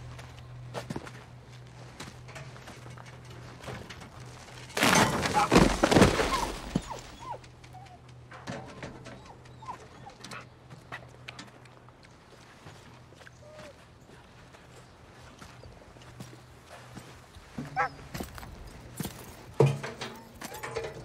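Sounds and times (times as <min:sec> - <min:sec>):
footsteps crunching on gravel: 0:00.0 - 0:07.2, 0:12.2 - 0:20.6
dog whimpering: 0:06.3 - 0:08.0.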